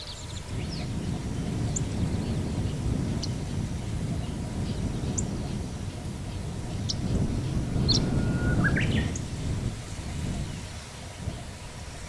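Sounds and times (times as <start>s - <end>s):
steady low rumble: 0.2s - 12.0s
bird calling high notes: 6.8s - 9.2s.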